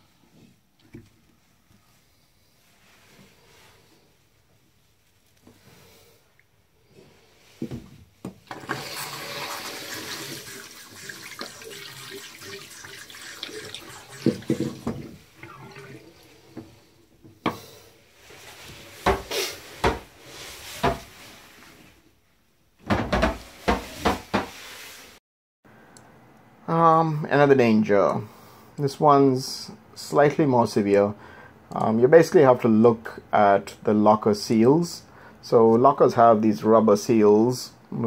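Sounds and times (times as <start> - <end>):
water running into basin: 8.4 - 17.0.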